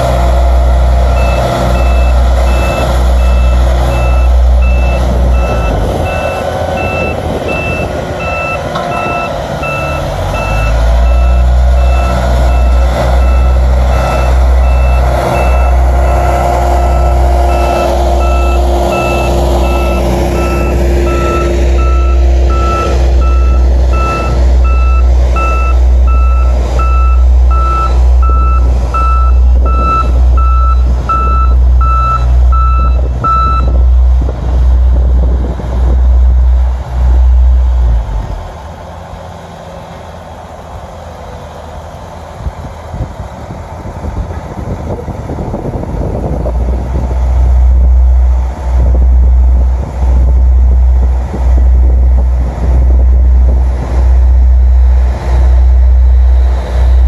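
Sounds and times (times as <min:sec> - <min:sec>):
heavy diesel machinery rumbling: 0:00.0 - 0:57.0
backup alarm beeping: 0:01.2 - 0:16.3, 0:16.9 - 0:33.8
lower-pitched backup alarm beeping: 0:16.9 - 0:33.8.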